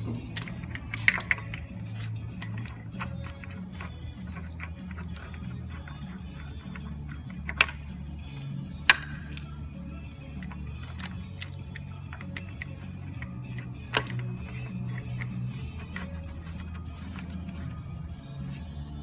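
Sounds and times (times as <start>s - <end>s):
background music: 0.0s - 19.0s
metal tool clicks and taps: 0.4s - 1.7s, 8.8s - 9.6s, 10.4s - 16.1s.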